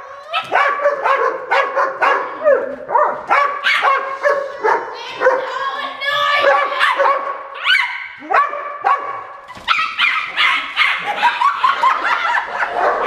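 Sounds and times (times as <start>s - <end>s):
dogs barking: 0.4s - 5.7s, 6.4s - 13.0s.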